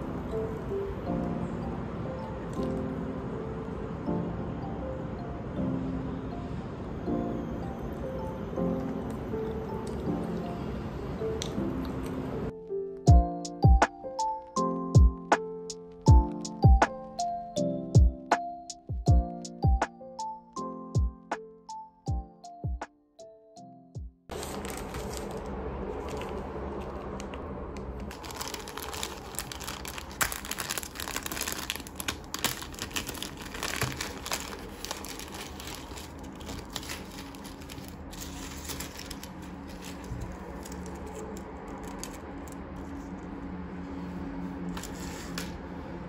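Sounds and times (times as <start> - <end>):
plastic bags crinkling: 24.3 - 26.5, 28.0 - 43.0.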